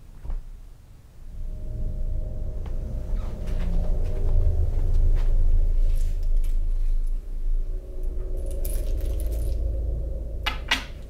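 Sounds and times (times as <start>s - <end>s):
steady low hum: 0.0s - 11.0s
metal jingle: 8.4s - 9.6s.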